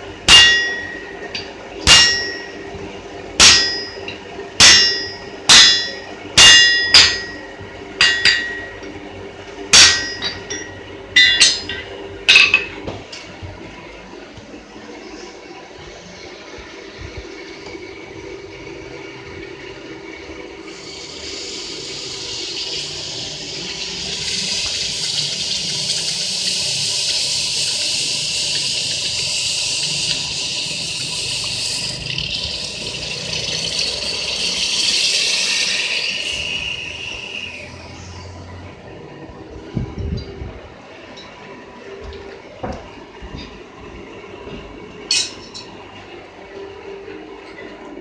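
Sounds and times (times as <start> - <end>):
hot steel hissing in water: 20.7 - 38.5.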